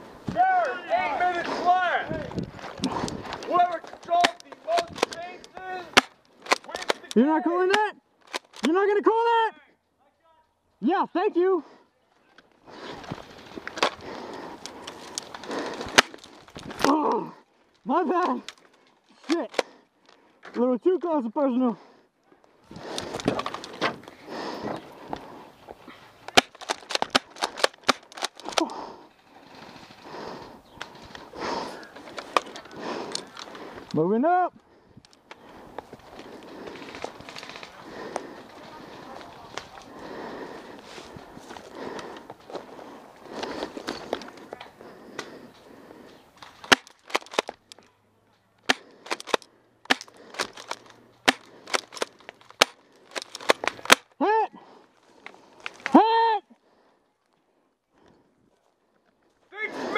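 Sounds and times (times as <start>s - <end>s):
rustling: 34.6s - 48.0s.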